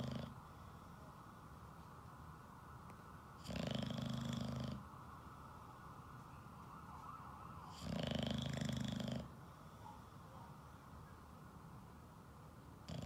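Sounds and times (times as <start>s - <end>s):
dog snoring loudly: 0.0s - 0.4s, 3.4s - 4.9s, 7.8s - 9.4s.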